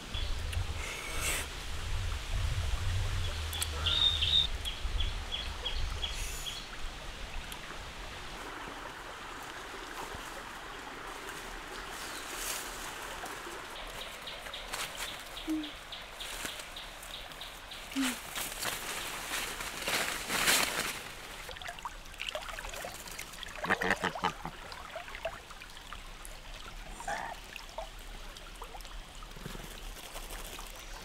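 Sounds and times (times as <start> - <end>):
steady noisy hiss: 0.0 - 21.5
bird chirping: 3.5 - 6.6.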